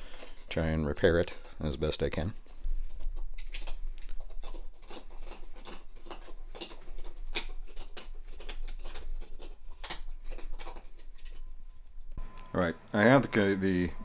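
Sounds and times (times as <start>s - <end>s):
dog chewing toy ball: 2.4s - 12.0s.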